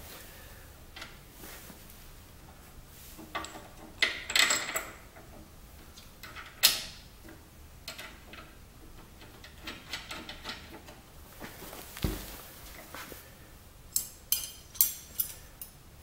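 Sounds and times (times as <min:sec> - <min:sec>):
light metallic clinks: 0:13.9 - 0:15.8.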